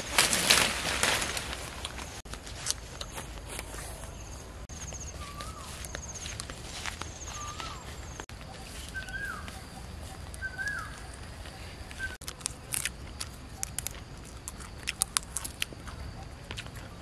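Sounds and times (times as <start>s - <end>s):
bird whistled call: 5.0s - 5.8s, 7.2s - 12.2s
sharp clicks and snaps: 12.0s - 16.9s.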